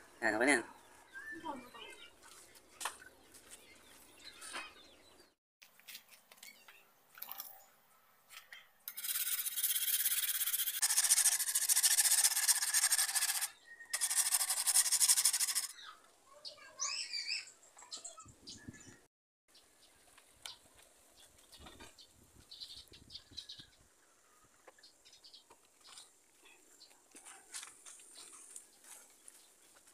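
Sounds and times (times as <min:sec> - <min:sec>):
whetstone rasping on blade: 0:08.9 - 0:15.7.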